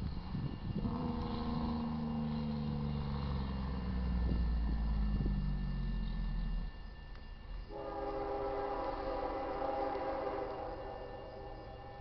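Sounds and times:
train low rumble: 0.0 - 12.0
train air horn chord: 7.7 - 12.0.

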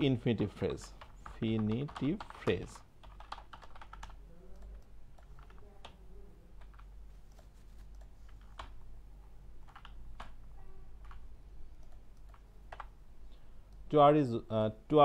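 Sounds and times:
faint low hum: 0.0 - 15.0
keyboard and mouse clicks: 11.8 - 12.9.

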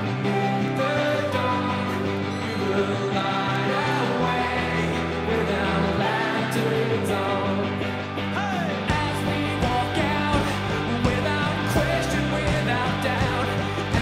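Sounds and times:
bass guitar: 0.0 - 14.0
person singing: 0.0 - 14.0
rock band playing: 0.0 - 14.0
drums steady beat: 8.9 - 14.0.

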